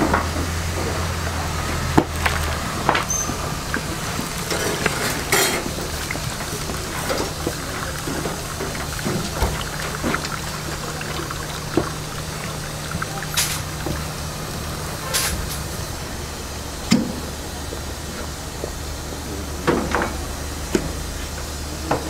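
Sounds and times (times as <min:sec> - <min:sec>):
broth dripping into a pot: 0:01.1 - 0:16.9.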